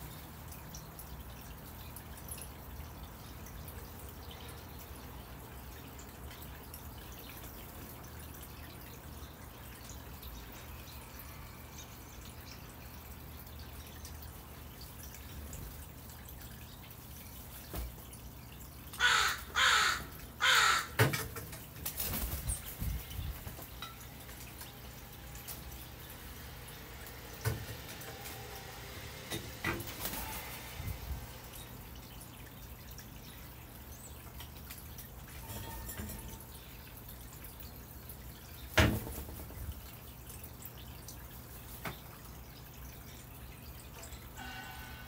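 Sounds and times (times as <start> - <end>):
crow cawing: 19.0 - 21.0.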